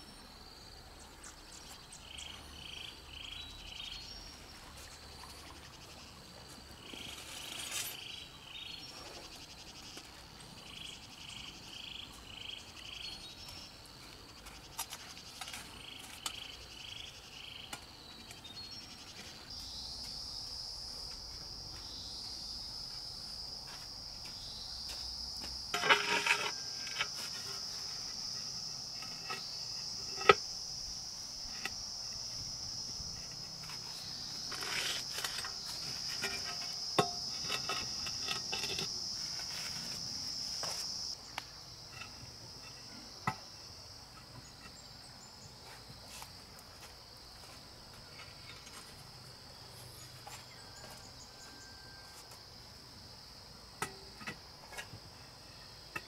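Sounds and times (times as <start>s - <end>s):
insects chirring: 0.0s - 56.0s
scraping clatters: 25.7s - 27.7s.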